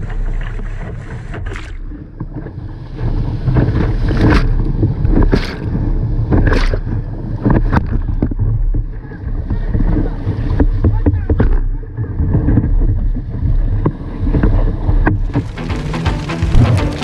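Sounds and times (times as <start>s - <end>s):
water rushing over rocks: 15.1s - 17.0s.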